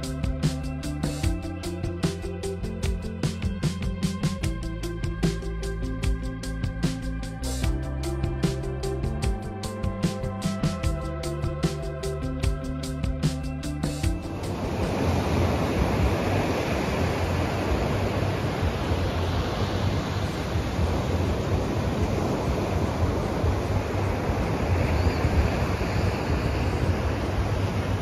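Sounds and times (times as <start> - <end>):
wind on microphone: 14.1 - 28.0
ocean surf breaking: 14.2 - 28.0.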